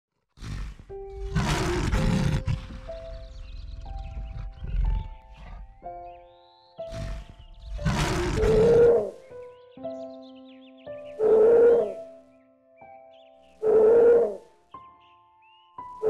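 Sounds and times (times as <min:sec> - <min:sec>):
lion roaring and growling: 0:00.4 - 0:05.9, 0:06.9 - 0:09.2, 0:11.2 - 0:12.0, 0:13.6 - 0:14.4
soft piano music: 0:00.8 - 0:16.0.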